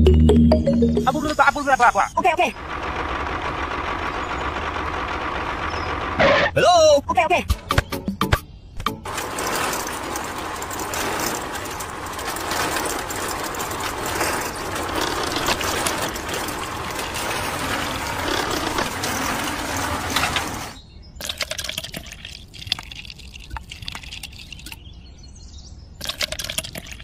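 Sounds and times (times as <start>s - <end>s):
cement mixer churning: 2.6s - 6.2s, 9.0s - 24.8s
scattered clicks and scrapes: 8.8s - 24.8s, 26.0s - 27.0s.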